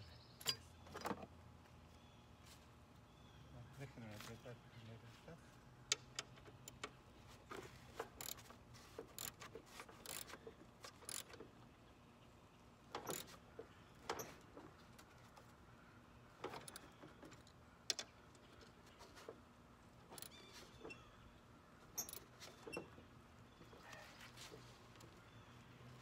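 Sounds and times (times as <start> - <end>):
wrench clicking on bolt: 5.9 - 7.0, 8.0 - 8.4, 9.1 - 11.5, 12.9 - 13.4, 16.4 - 17.0, 20.1 - 20.4, 22.0 - 22.8
wrench scraping: 5.9 - 11.5, 12.9 - 13.4, 14.0 - 14.5, 16.4 - 18.1, 20.0 - 21.0, 21.9 - 23.0.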